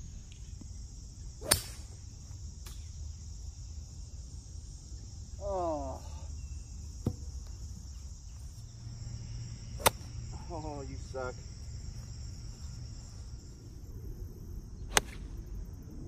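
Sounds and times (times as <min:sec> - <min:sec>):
insects buzzing: 0:00.0 - 0:16.0
golf club striking ball: 0:01.4 - 0:01.8, 0:09.8 - 0:10.2.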